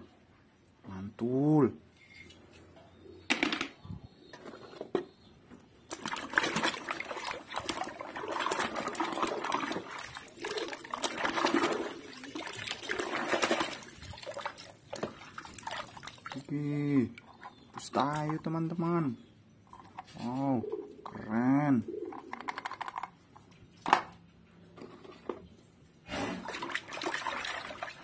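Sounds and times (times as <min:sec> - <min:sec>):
water dribbling: 0:05.9 - 0:19.1, 0:26.4 - 0:28.0
hand splashing in soapy water: 0:06.0 - 0:16.5.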